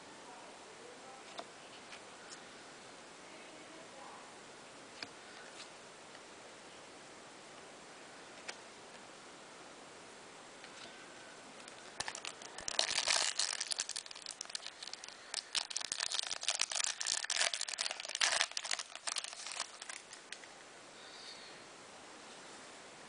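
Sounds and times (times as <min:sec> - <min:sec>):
foil wrapper crinkling: 0:11.7 - 0:20.4.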